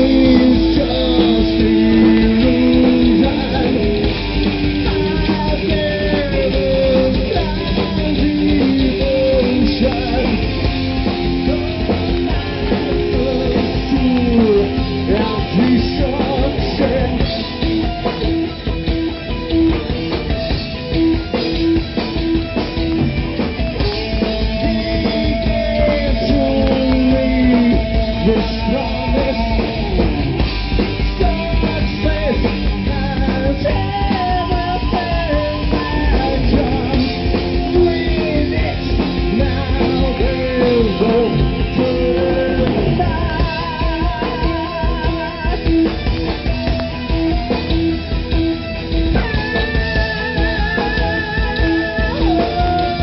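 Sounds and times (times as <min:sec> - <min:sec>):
person singing: 0:00.0 - 0:18.1, 0:23.8 - 0:46.9, 0:49.1 - 0:53.0
drum kit: 0:00.0 - 0:53.0
guitar: 0:00.0 - 0:53.0.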